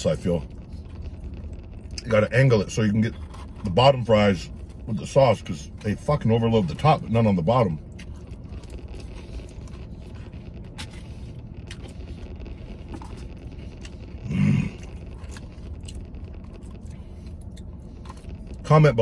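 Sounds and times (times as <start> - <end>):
low hum: 0.0 - 19.0
chewing: 7.8 - 18.6.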